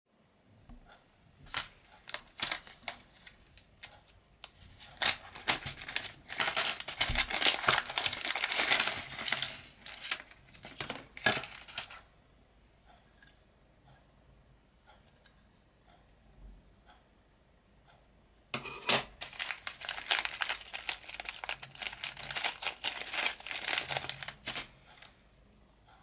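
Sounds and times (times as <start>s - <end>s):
plastic bag crinkling: 1.5s - 12.0s, 19.0s - 25.2s.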